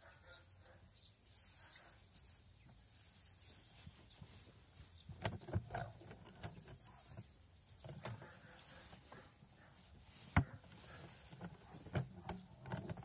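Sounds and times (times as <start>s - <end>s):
hay rustling: 0.3s - 5.2s, 6.5s - 12.2s
wooden knocks and clatter: 5.1s - 6.9s, 10.3s - 13.0s.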